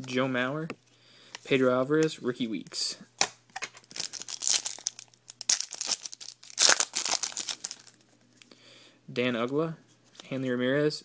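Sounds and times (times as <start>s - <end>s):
foil wrapper crackling: 3.8s - 8.0s.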